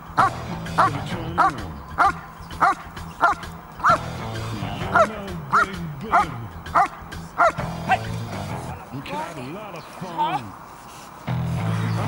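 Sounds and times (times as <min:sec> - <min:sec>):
background music: 0:00.0 - 0:10.6, 0:11.2 - 0:12.0
dog barking sharply: 0:00.2 - 0:04.0, 0:06.1 - 0:07.6.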